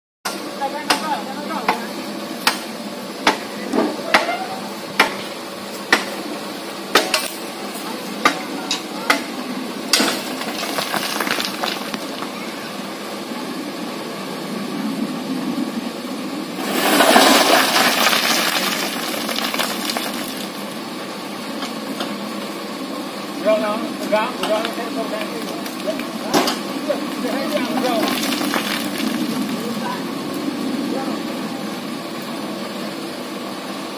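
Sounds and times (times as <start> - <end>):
rushing noise: 9.5 - 20.7
shovels scraping on metal truck bed: 16.6 - 20.2.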